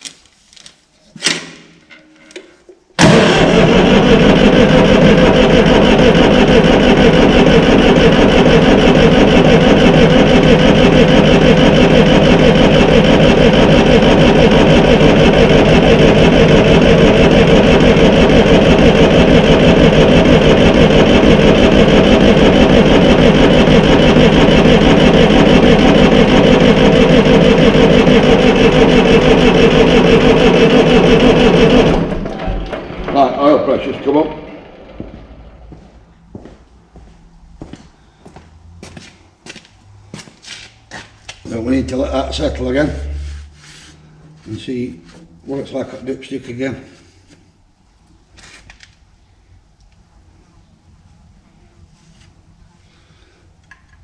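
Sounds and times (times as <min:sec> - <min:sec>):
diesel engine cranking on starter: 0:03.0 - 0:35.8.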